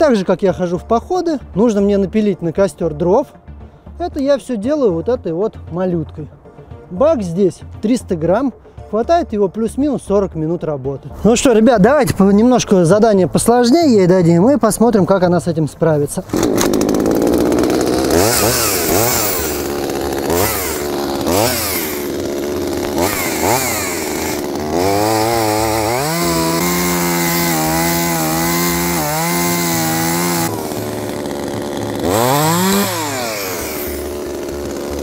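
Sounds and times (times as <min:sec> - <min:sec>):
chainsaw revving and cutting log: 0:16.3 - 0:35.0.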